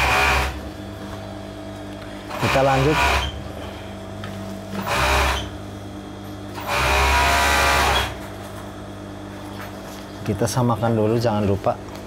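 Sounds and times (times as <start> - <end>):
industrial sewing machine stitching: 0.0 - 0.6, 2.3 - 3.4, 4.8 - 5.6, 6.6 - 8.2
steady hum: 0.0 - 12.0.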